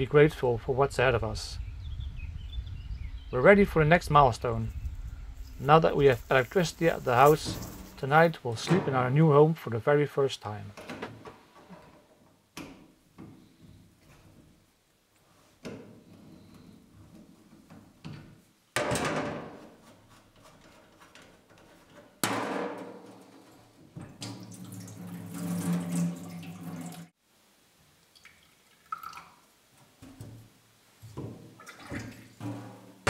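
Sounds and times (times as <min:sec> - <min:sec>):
low steady hum: 0:00.0 - 0:09.4
tap water rushing into sink: 0:24.0 - 0:27.1.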